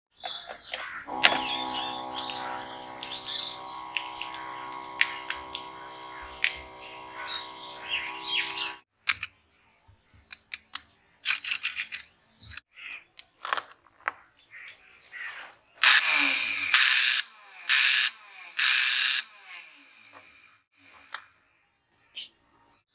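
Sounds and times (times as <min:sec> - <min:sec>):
birds chirping: 0:00.1 - 0:08.8
small water pump humming: 0:01.1 - 0:08.8, 0:15.8 - 0:20.5
motor being handled clicks: 0:01.1 - 0:09.3.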